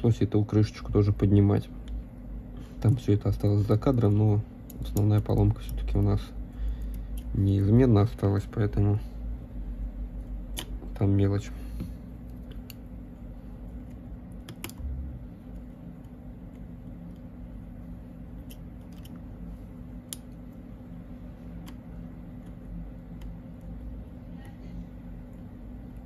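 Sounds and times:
steady low hum: 0:00.0 - 0:26.0
tweezers clicking on metal parts: 0:04.6 - 0:07.4.

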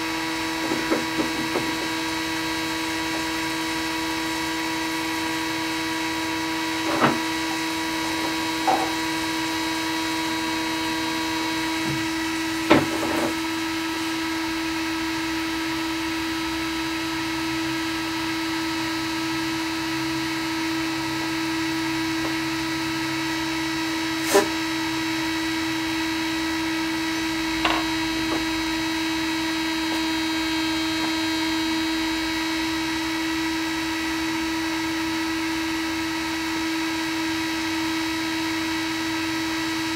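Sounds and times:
printer fans and motors humming: 0:00.0 - 0:39.9.

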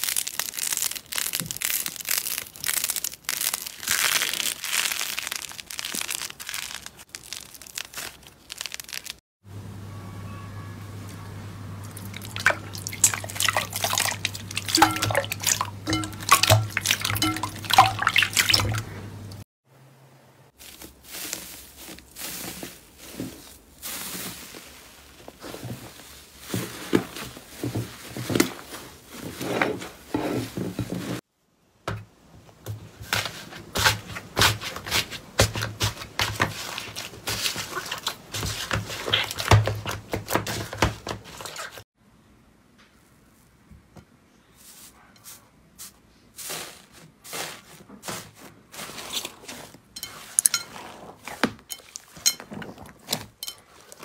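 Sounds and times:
slime squelching: 0:11.8 - 0:19.4, 0:33.8 - 0:41.8, 0:46.4 - 0:54.0.

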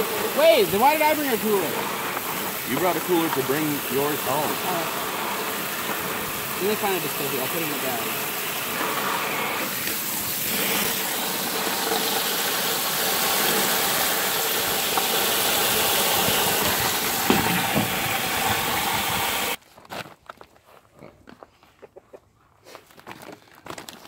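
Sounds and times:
hose water spraying on ice: 0:00.0 - 0:19.6
bag crinkling: 0:22.8 - 0:24.0.

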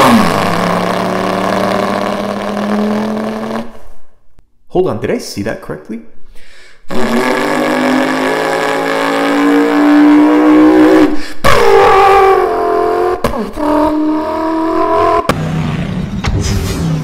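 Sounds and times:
man imitating engine revving: 0:00.0 - 0:03.8, 0:06.9 - 0:15.3.

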